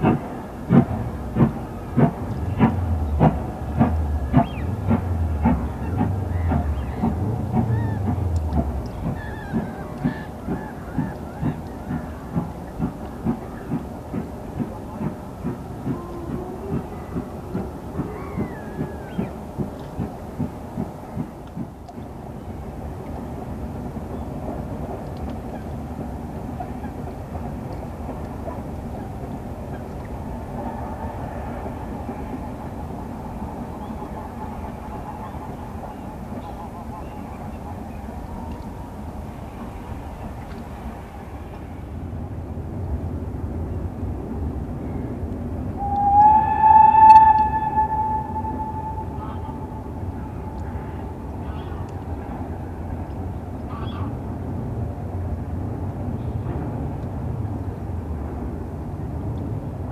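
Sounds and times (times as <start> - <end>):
steam train running: 0.0 - 59.9
steam locomotive whistle: 45.7 - 51.2.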